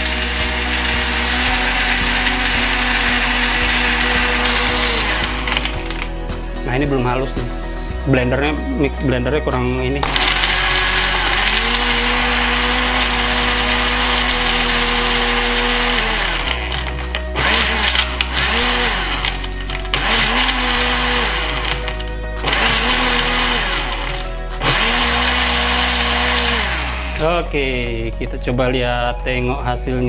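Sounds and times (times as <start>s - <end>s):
blender crushing ice: 0.0s - 6.2s, 10.0s - 27.3s.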